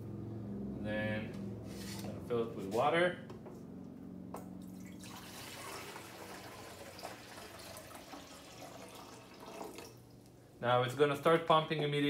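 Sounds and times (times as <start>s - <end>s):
water pouring from a jug: 4.6s - 10.1s.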